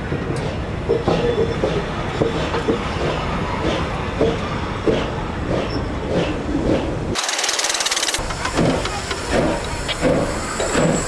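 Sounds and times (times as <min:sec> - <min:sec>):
steam locomotive rumbling: 0:00.0 - 0:07.2, 0:08.2 - 0:11.0
wheels and rods clanking: 0:05.6 - 0:11.0
steam hissing: 0:07.2 - 0:11.0.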